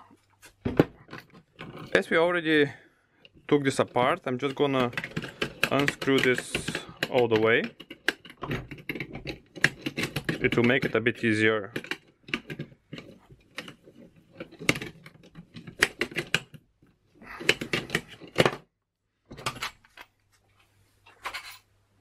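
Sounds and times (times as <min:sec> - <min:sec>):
lock knob clicking and rattling: 0:04.4 - 0:10.9.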